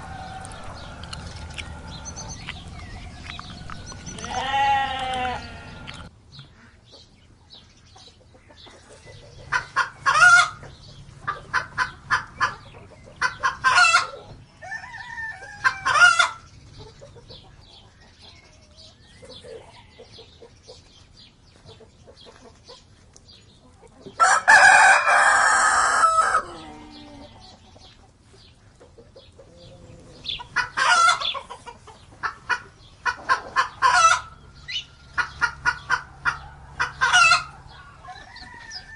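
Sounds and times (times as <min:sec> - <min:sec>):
rooster crowing: 0:00.0 - 0:02.9, 0:13.9 - 0:16.4, 0:24.2 - 0:27.2, 0:36.4 - 0:38.9
hens clucking: 0:00.0 - 0:07.2, 0:07.9 - 0:38.9.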